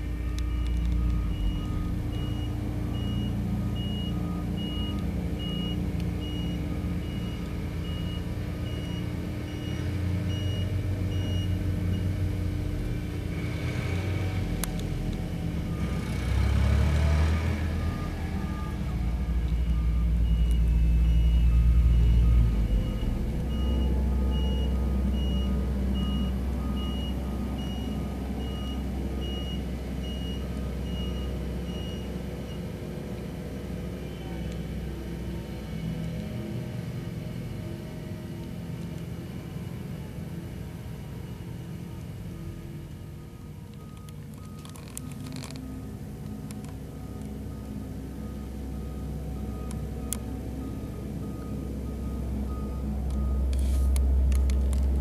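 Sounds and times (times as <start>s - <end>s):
reversing alarm beeping: 0.0s - 12.3s, 15.3s - 32.8s, 41.1s - 55.0s
diesel engine rumbling: 0.0s - 55.0s.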